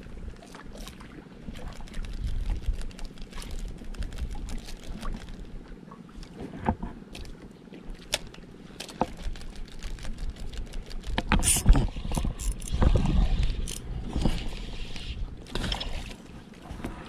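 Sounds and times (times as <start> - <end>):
water lapping against boat hull: 0.0 - 17.0.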